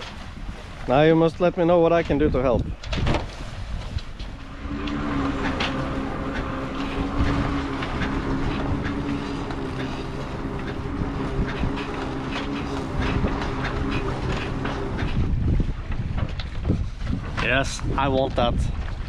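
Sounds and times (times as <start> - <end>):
water noise: 0.0 - 19.0
wind: 0.0 - 19.0
motor humming: 3.9 - 16.6.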